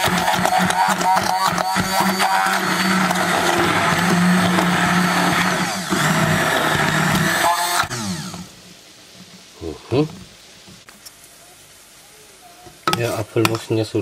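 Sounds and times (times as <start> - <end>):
stick blender motor hum: 0.0 - 8.5.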